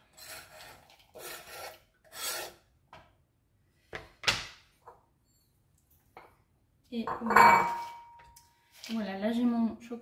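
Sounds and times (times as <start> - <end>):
knife scraping cutting board: 0.0 - 2.6.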